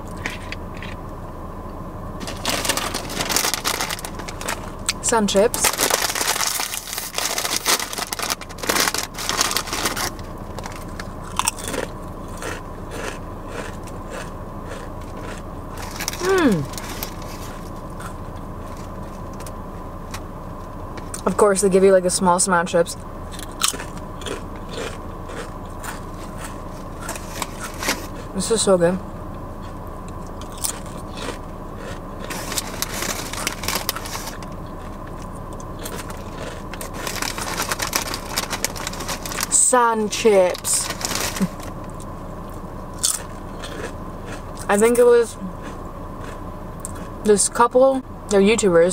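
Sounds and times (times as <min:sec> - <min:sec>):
low hum: 0:00.0 - 0:48.9
crunchy chewing: 0:02.2 - 0:05.0, 0:05.6 - 0:20.2, 0:23.3 - 0:28.4, 0:29.6 - 0:39.6, 0:40.5 - 0:47.3
chip bag rustling: 0:02.2 - 0:17.8, 0:23.6 - 0:28.3, 0:30.5 - 0:34.6, 0:35.8 - 0:41.8
chip crunch bite: 0:05.6 - 0:18.2, 0:23.3 - 0:28.3, 0:30.2 - 0:34.4, 0:35.5 - 0:39.6, 0:43.0 - 0:45.0.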